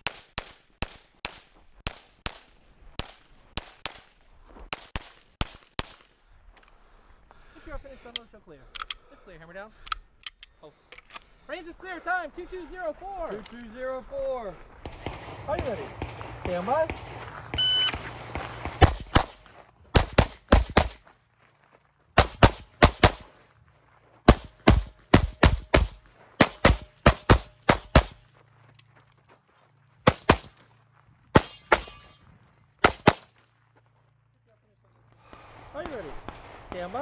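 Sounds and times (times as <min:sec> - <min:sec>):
pistol shots: 0:14.8 - 0:21.0, 0:22.2 - 0:23.3, 0:24.3 - 0:28.2, 0:30.0 - 0:30.6, 0:31.3 - 0:32.2, 0:32.8 - 0:33.3
metallic ring: 0:31.4 - 0:32.5.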